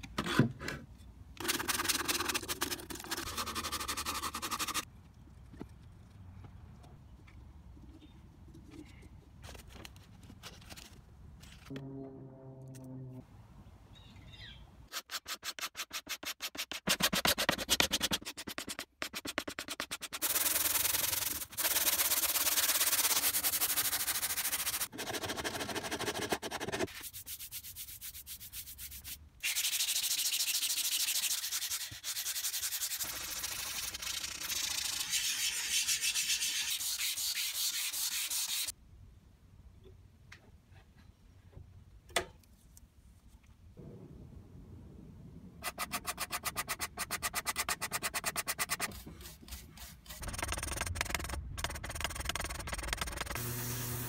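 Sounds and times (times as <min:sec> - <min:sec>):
sandpaper scraping wood: 0:01.4 - 0:04.9, 0:14.9 - 0:38.7, 0:45.6 - 0:54.0.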